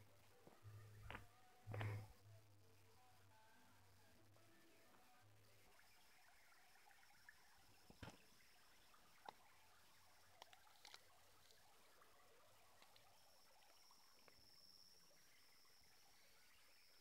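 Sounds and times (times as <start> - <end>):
low hiss: 0.0 - 17.0
faint clicks: 10.3 - 11.7
high-pitched insect drone: 11.4 - 17.0.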